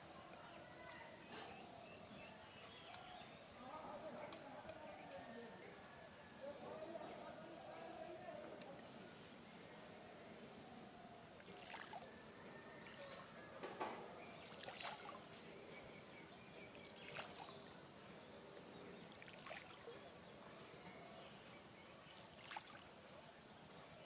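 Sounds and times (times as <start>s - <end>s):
small splashes on pond surface: 11.4s - 12.1s, 14.4s - 15.4s, 16.8s - 17.7s, 19.0s - 20.0s, 22.3s - 23.0s.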